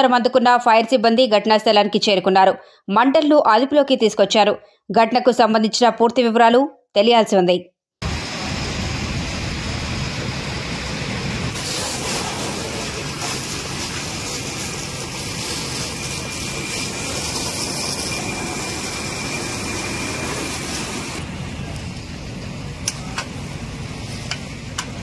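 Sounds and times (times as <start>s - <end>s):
fire engine pump rumbling: 8.0s - 25.0s
fire hose spraying water: 8.0s - 25.0s.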